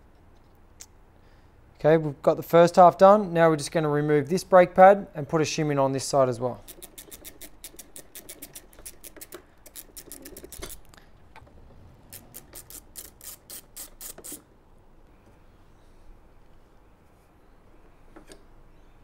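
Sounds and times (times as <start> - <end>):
ratchet clicking: 6.6 - 11.5, 12.1 - 14.4.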